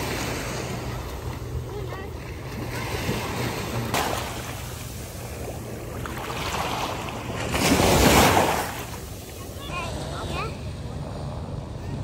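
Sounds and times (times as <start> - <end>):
waves washing on sand: 0.0 - 1.6, 2.4 - 9.8.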